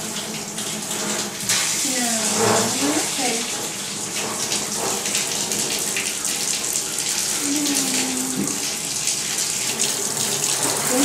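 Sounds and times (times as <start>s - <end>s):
water spraying into a tub: 0.0s - 11.0s.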